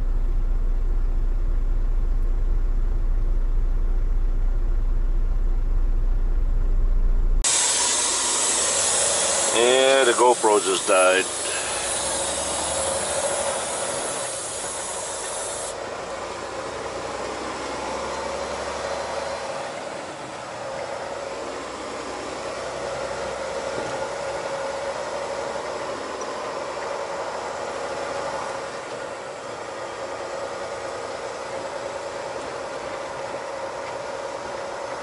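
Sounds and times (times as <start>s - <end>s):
faint constant hum: 0.0s - 7.5s
truck engine and road noise: 0.0s - 35.0s.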